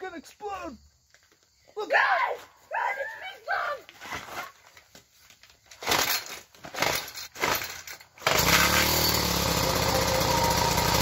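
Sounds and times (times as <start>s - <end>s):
starter rope pulls: 5.7s - 11.0s
string trimmer engine running: 8.2s - 11.0s.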